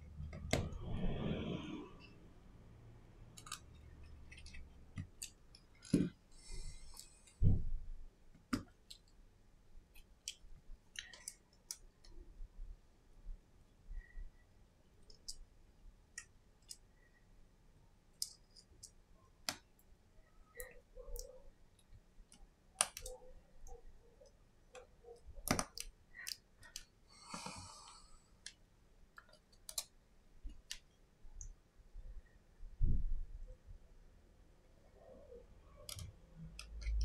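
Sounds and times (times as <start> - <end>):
fingers clicking and tapping phone: 3.3 - 6.2, 9.9 - 12.2, 15.0 - 15.5, 20.5 - 27.0, 28.4 - 31.6, 35.7 - 37.0.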